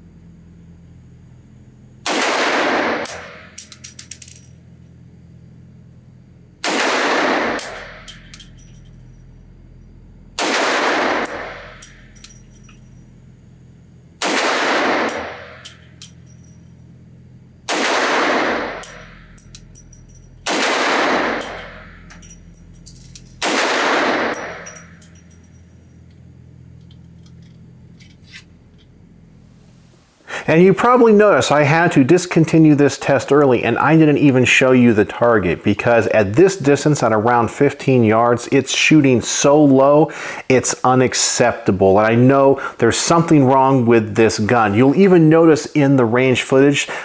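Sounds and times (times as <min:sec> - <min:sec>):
pistol shots echoing indoors: 0:02.0 - 0:03.8, 0:06.6 - 0:08.5, 0:10.4 - 0:12.1, 0:14.2 - 0:15.8, 0:17.7 - 0:25.0
brass casings clicking: 0:03.6 - 0:04.5, 0:07.6 - 0:13.2, 0:15.0 - 0:17.0, 0:18.3 - 0:28.2.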